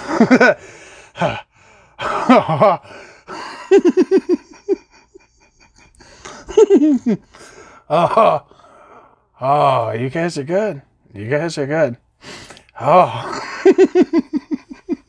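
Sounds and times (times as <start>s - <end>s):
man laughing: 0.0s - 0.6s, 2.0s - 8.5s, 12.9s - 15.0s.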